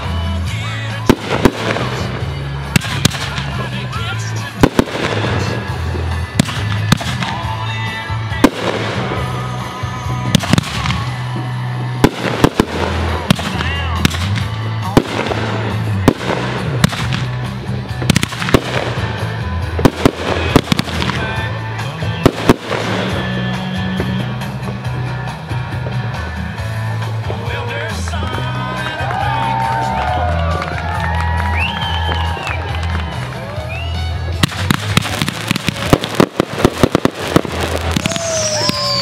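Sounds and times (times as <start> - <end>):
firework shells bursting: 4.6 - 7.6, 12.0 - 21.4, 34.4 - 39.0.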